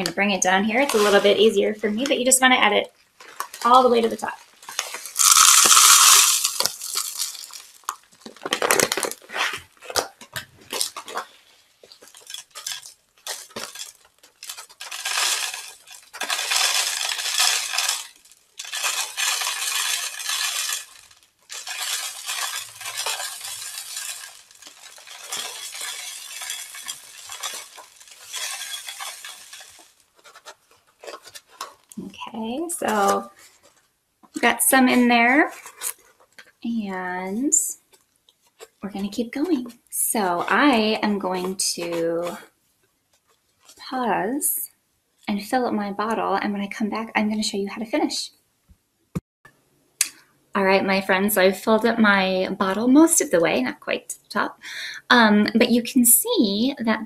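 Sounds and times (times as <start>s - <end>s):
bird seed pouring into bottle: 4.7s - 8.1s, 11.9s - 32.0s.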